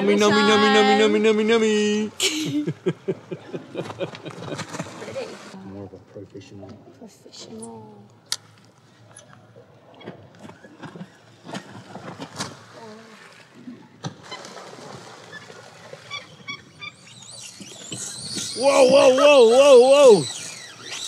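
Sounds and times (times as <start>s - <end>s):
faint seabird calls: 15.4s - 21.0s.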